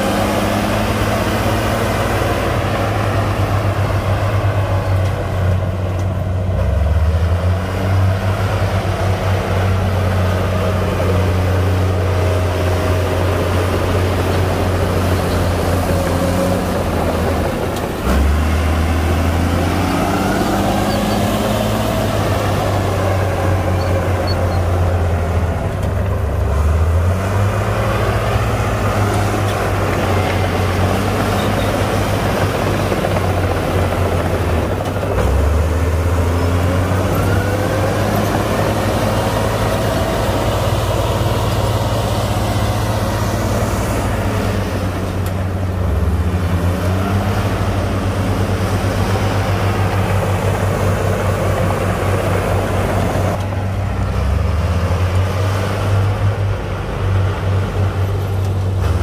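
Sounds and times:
bulldozer diesel engine: 0.0 - 59.0
dump truck engine running: 0.0 - 59.0.

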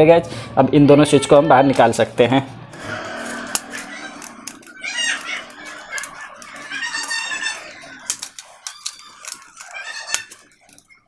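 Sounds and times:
high-pitched bird call: 2.6 - 11.0
screwdriver clicking on terminals: 8.0 - 11.0.

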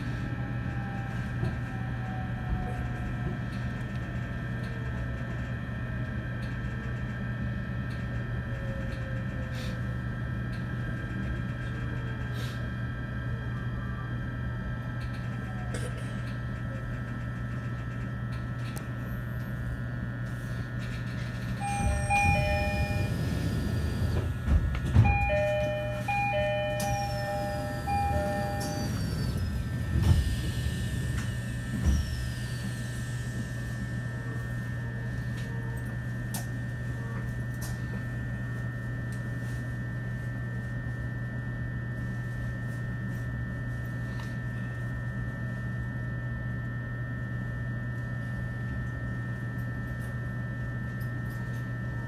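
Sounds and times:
electric train humming: 17.6 - 38.4
two-note door chime: 21.6 - 23.3, 25.0 - 29.0
train doors thudding: 21.6 - 32.3.

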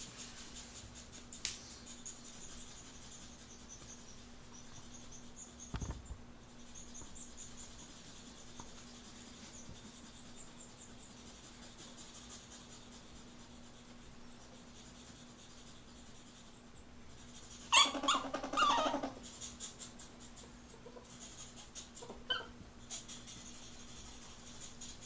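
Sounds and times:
ferret squeaking: 17.6 - 19.3, 22.0 - 23.8
ferret cry: 17.7 - 19.2, 22.0 - 22.6.

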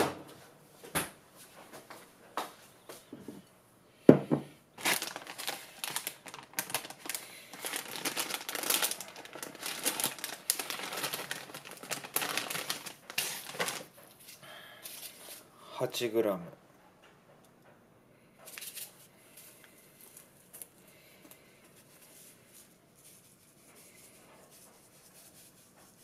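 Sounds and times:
plastic packaging crinkling: 4.8 - 15.1.

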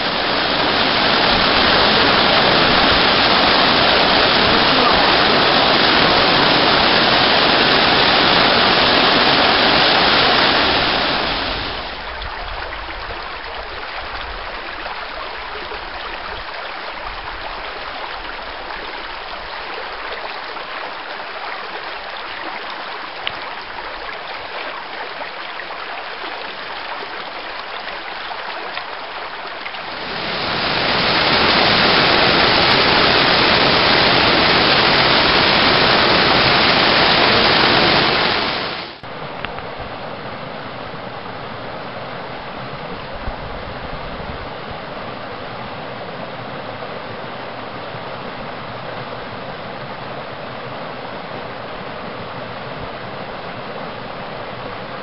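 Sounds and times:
waterfall rushing: 0.0 - 12.1, 29.7 - 39.1
creek running over rocks: 0.0 - 39.8.

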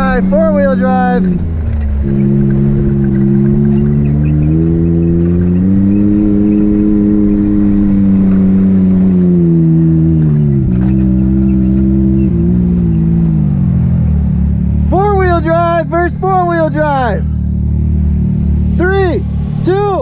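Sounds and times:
vehicle engine revving: 0.0 - 20.0.

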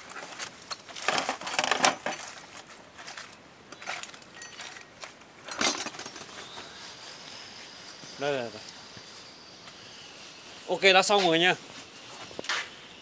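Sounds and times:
small metal objects clinking: 3.7 - 4.9, 5.5 - 6.4.

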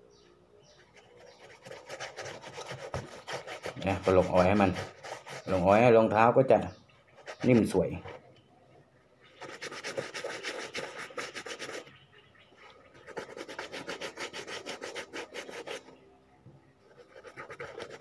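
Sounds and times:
fingers rubbing leather shoe: 0.9 - 6.0, 9.4 - 11.9, 13.0 - 16.0, 16.9 - 18.0.

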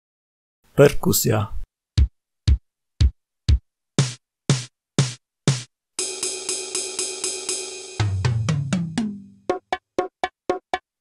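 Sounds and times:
bass drum beats: 8.0 - 10.8.

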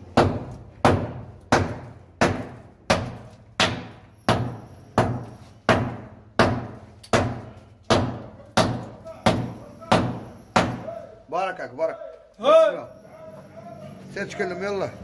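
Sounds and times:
hammer blows ringing: 0.1 - 11.2.

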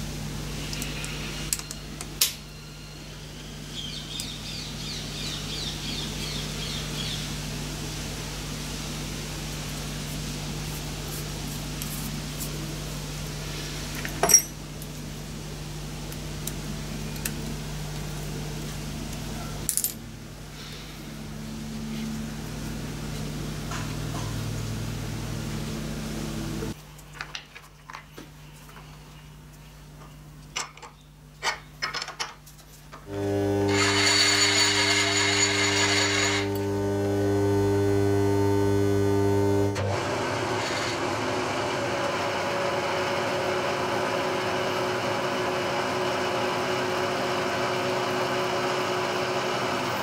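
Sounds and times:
steady low hum: 0.0 - 27.0, 33.0 - 39.9
small metal parts clinking: 14.0 - 14.6
low hum: 33.1 - 39.9.

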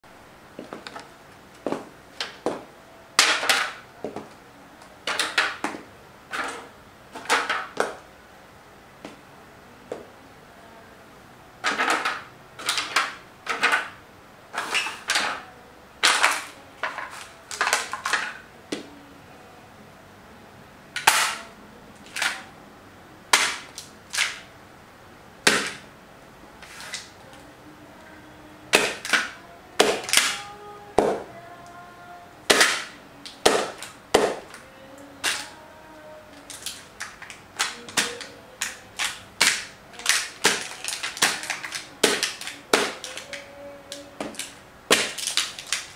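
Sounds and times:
shoe heels on tile floor: 0.6 - 1.0
plastic cracking underfoot: 36.5 - 45.9.

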